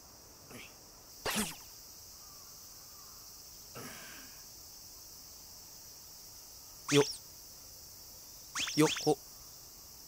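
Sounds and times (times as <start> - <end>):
high-pitched insect chirring: 6.9 - 7.4, 8.3 - 10.0.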